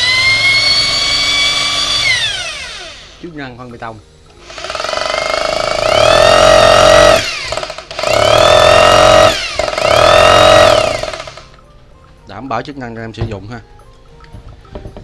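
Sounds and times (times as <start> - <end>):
hammer drill motor whine: 0.0 - 3.2, 4.4 - 11.5.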